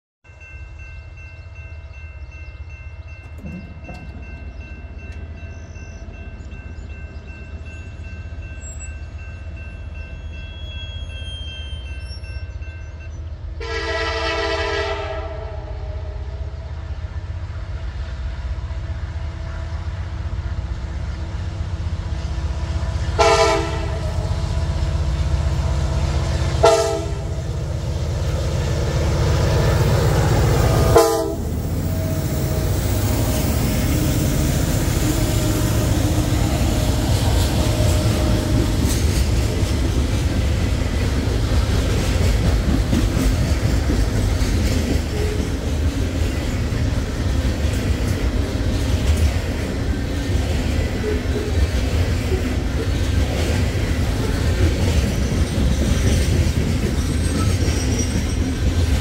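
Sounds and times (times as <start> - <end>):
train engine and rail rumble: 0.2 - 59.0
train horn blasts: 13.6 - 16.4, 22.5 - 27.5, 29.5 - 34.2, 34.8 - 39.0.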